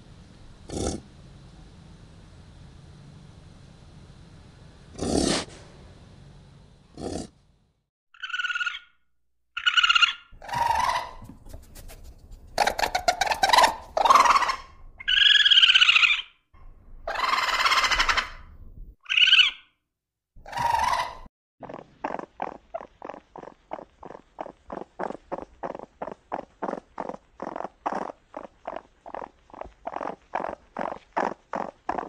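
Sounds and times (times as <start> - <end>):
raccoon chittering: 8.2 - 8.9, 9.6 - 16.3, 17.1 - 19.6, 20.4 - 32.0
raccoon squealing and screeching: 8.2 - 8.9, 9.6 - 11.6, 12.6 - 16.4, 17.1 - 19.7, 20.4 - 32.0.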